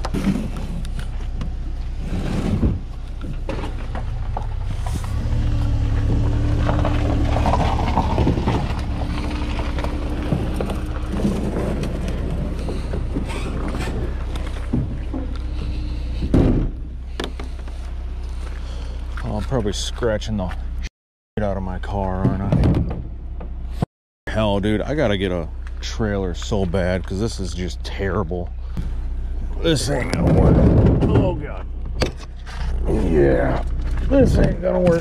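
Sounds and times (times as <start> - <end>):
plastic hull scraping: 0.0 - 19.6, 29.7 - 35.0
steady low rumble: 0.0 - 35.0.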